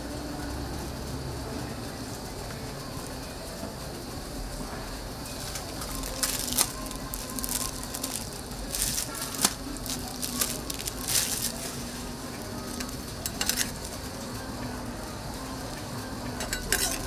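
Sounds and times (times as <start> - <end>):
food sizzling on a griddle: 0.0 - 17.0
steady low hum: 0.0 - 17.0
metal utensils scraping griddle: 5.4 - 14.1, 16.4 - 17.0.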